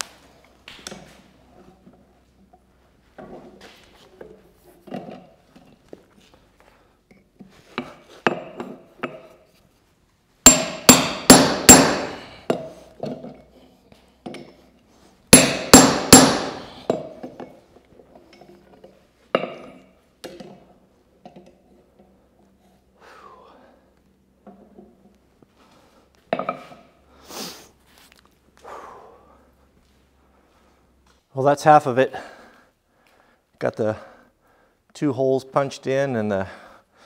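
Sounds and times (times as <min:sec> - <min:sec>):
anvil ringing: 0:10.4 - 0:12.6, 0:15.3 - 0:17.2
hammer striking steel on anvil: 0:10.4 - 0:12.7, 0:15.3 - 0:17.2.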